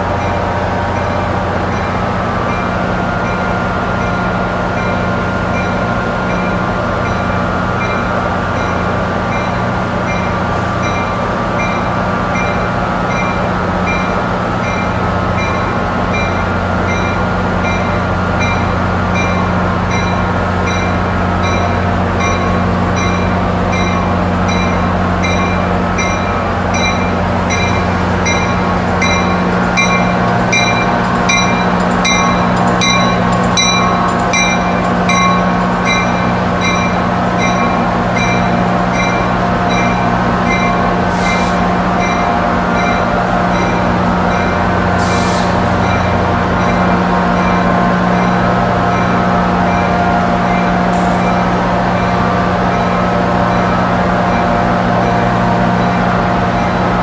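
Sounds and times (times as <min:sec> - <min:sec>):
idling locomotive engines drone: 0:00.0 - 0:57.0
train warning bell ringing: 0:00.1 - 0:57.0.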